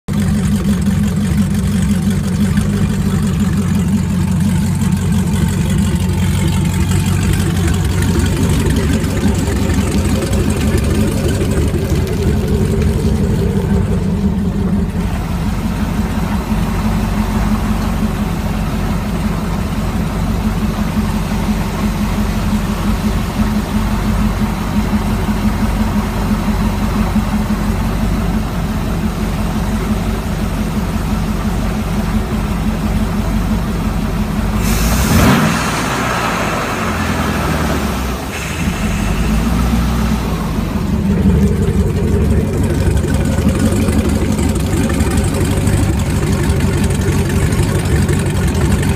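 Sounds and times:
boat engine idling: 0:00.0 - 0:48.9.

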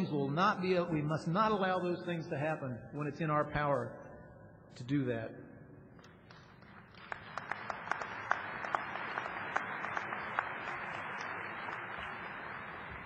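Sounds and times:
sharp individual claps: 0:06.0 - 0:13.0
large audience applauding: 0:06.3 - 0:13.0.

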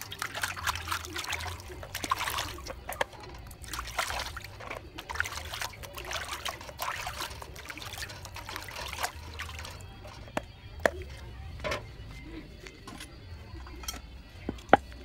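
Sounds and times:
water splashing in steel bowl: 0:00.0 - 0:11.2.

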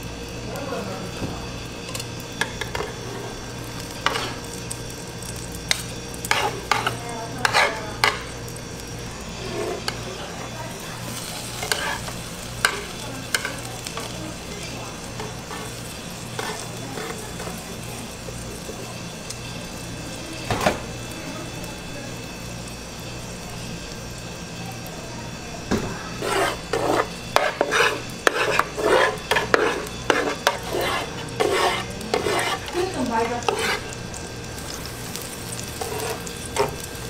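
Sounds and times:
egg sizzling on a griddle: 0:00.0 - 0:37.0
plastic spatulas scraping pan: 0:26.2 - 0:33.9.

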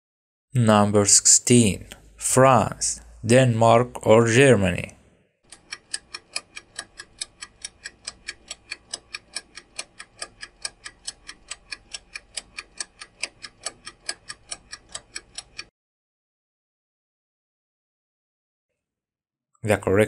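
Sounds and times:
clock ticking: 0:05.5 - 0:15.7.

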